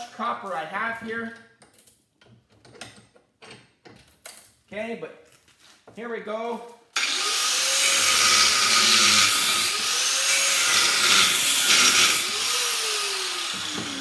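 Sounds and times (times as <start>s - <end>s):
angle grinder cutting metal: 7.0s - 14.0s
grinder winding down whine: 7.0s - 14.0s.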